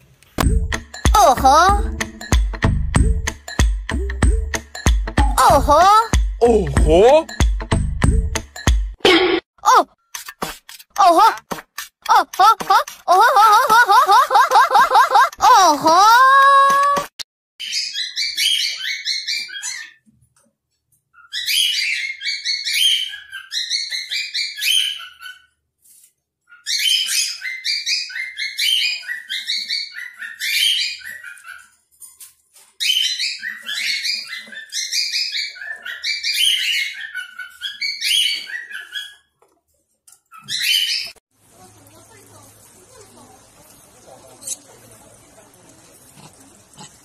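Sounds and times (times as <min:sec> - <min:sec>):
cockatiel chirping: 0:17.6 - 0:20.0, 0:21.2 - 0:25.5, 0:32.8 - 0:39.3.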